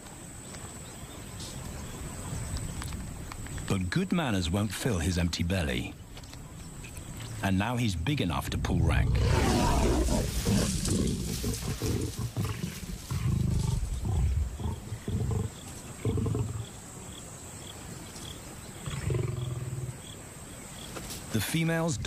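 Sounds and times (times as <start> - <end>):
lions snarling and growling: 8.4 - 16.8, 18.8 - 20.0.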